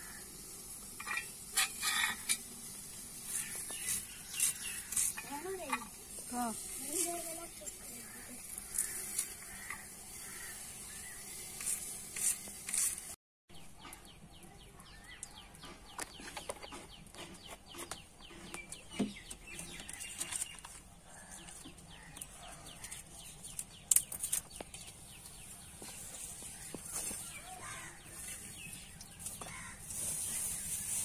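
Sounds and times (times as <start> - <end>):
hot oil crackling and spitting: 0.0 - 13.2, 19.5 - 31.0.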